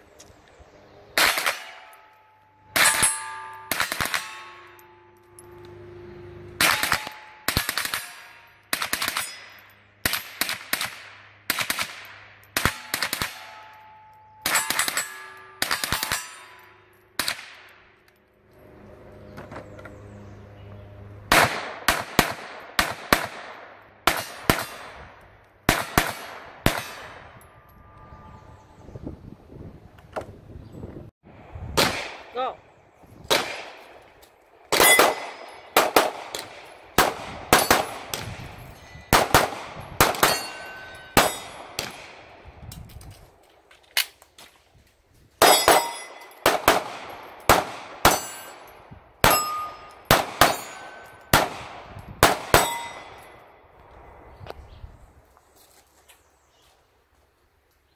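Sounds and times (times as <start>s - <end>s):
steel plate target clanging: 1.2s - 5.2s, 6.6s - 10.4s, 12.5s - 17.2s, 34.8s - 35.8s, 39.8s - 42.0s, 45.4s - 46.4s, 48.0s - 51.3s, 52.5s - 53.4s.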